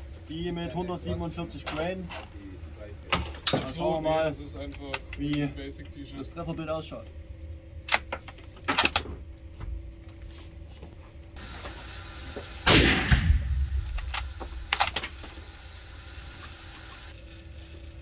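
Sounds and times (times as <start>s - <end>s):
suppressed rifle shot: 12.6s - 15.0s.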